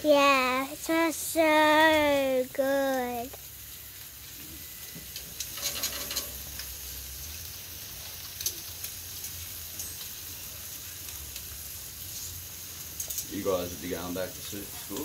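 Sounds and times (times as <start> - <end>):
bacon sizzling: 0.0 - 15.0
fat crackling and popping: 0.0 - 15.0.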